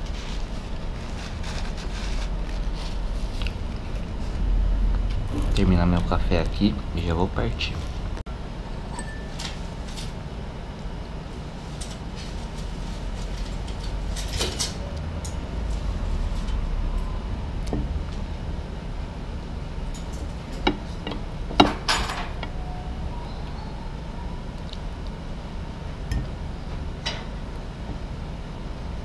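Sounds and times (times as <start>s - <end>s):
steady low rumble: 0.0s - 9.0s, 9.6s - 21.6s
dishes and cutlery clinking: 20.0s - 22.4s.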